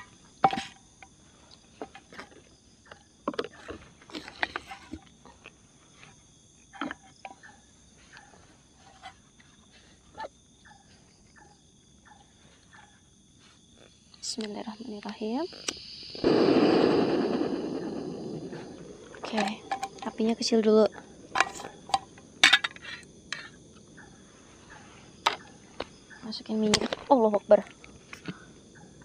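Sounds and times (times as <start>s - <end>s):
high-pitched insect chorus: 0.0s - 29.0s
camping cookware clinks and knocks: 21.4s - 22.8s.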